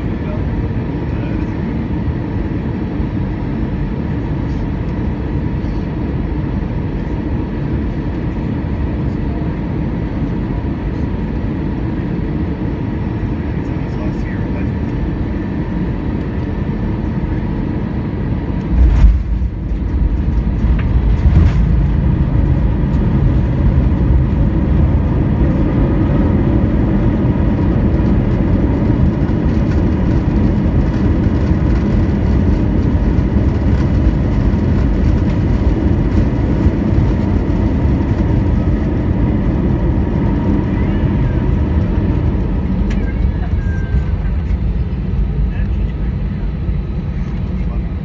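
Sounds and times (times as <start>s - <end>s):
engine and runway noise: 0.0s - 48.0s
thump of wheels meeting runway: 18.7s - 22.2s.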